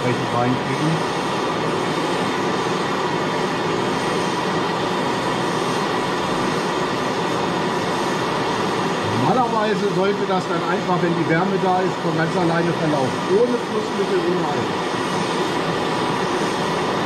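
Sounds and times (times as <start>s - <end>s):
brazing torch hissing: 0.0s - 17.0s.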